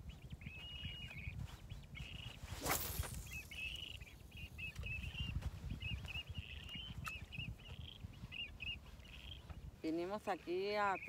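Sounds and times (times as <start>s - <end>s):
birds chirping: 0.0s - 11.0s
fishing rod swishing: 2.4s - 3.8s.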